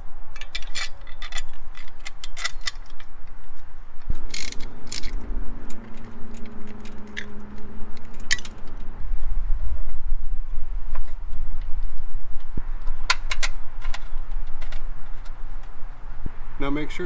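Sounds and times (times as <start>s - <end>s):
metal parts clicking and clinking: 0.3s - 3.4s, 4.0s - 8.9s.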